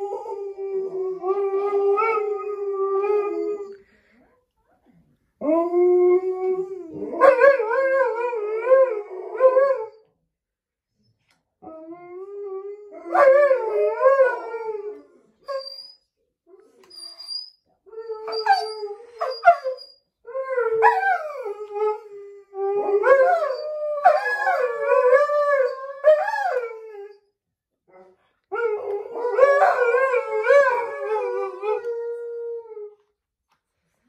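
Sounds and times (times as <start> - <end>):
dogs howling: 20.4 - 27.1, 28.6 - 32.9.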